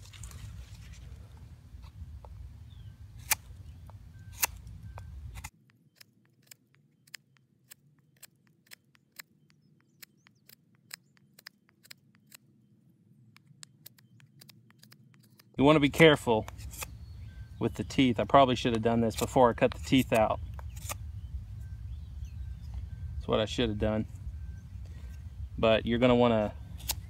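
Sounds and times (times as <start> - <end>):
knife carving wood: 3.2 - 12.5, 13.4 - 15.6, 16.4 - 17.2, 18.7 - 21.0, 26.8 - 27.0.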